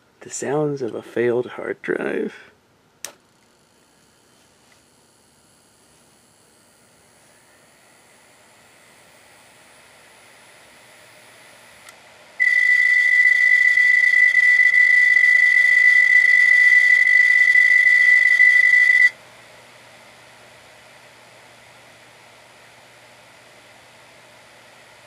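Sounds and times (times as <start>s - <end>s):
hard drive high-pitched squeal: 12.4s - 19.2s.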